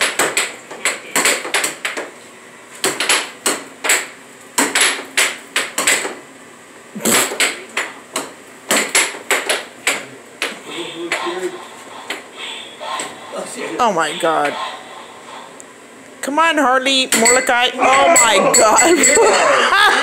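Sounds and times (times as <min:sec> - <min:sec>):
air hockey puck clacking: 0:00.0 - 0:02.1, 0:02.8 - 0:06.2, 0:07.2 - 0:11.3.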